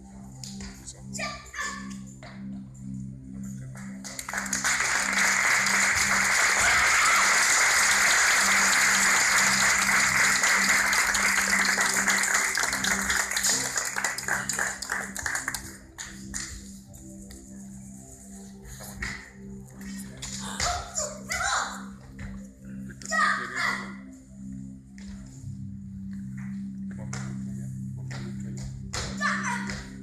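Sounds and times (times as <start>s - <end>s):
background music: 0.0s - 30.0s
audience applauding: 4.1s - 15.8s.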